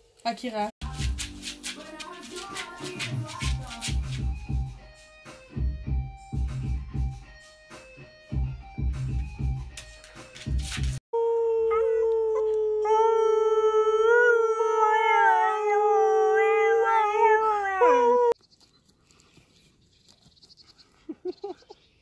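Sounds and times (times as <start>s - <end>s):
dog howling: 11.2s - 18.4s.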